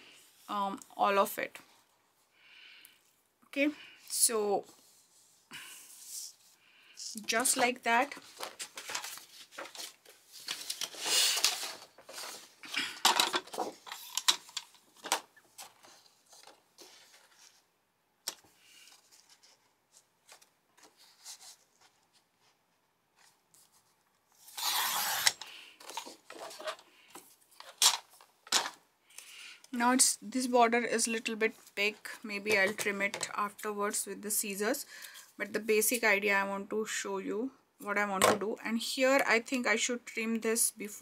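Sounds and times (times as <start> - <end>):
paper rustling and scraping: 7.2 - 17.7, 18.3 - 22.6, 23.2 - 28.8.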